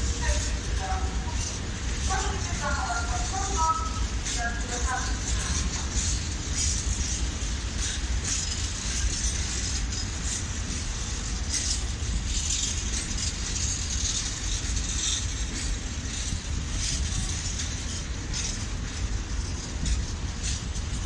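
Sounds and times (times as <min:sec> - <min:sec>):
metallic clatter and screeching: 0:00.0 - 0:21.0
train wheels rumbling on rails: 0:00.0 - 0:21.0.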